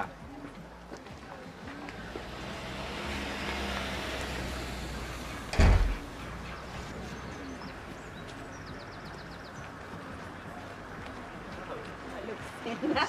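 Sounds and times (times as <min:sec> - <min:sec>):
loud short thump: 0:05.5 - 0:06.0.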